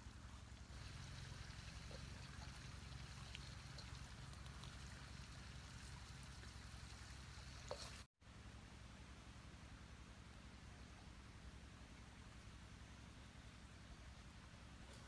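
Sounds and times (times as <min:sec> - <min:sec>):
shallow stream flowing: 0:00.0 - 0:08.1.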